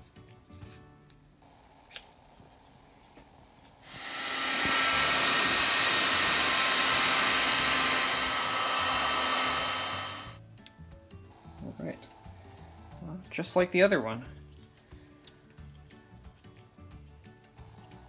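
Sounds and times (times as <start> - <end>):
heat gun blower running: 1.4 - 10.4.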